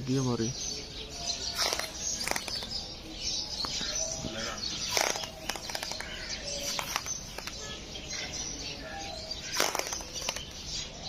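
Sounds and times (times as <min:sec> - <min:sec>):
birds chirping: 0:00.0 - 0:11.0
sharp clicks: 0:01.6 - 0:02.8, 0:04.8 - 0:07.8, 0:09.4 - 0:10.8.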